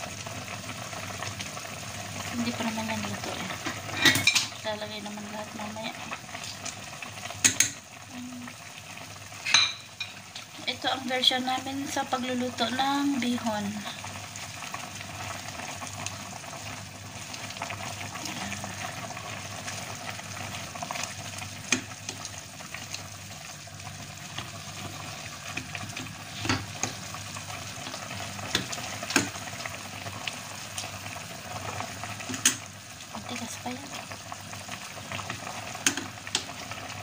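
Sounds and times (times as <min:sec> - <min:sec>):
utensil clicking on pot: 0:07.4 - 0:07.8, 0:21.6 - 0:22.3, 0:28.4 - 0:29.4, 0:32.2 - 0:32.7, 0:35.8 - 0:36.6.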